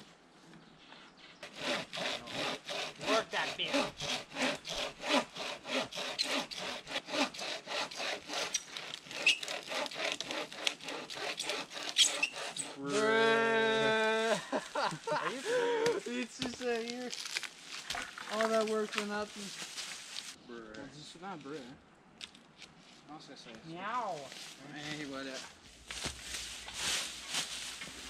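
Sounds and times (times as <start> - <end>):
hand saw cutting wood: 1.4 - 13.1.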